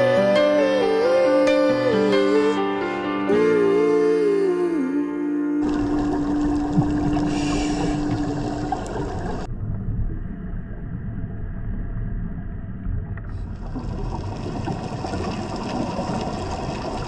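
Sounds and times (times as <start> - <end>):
underwater water noise: 5.6 - 17.0.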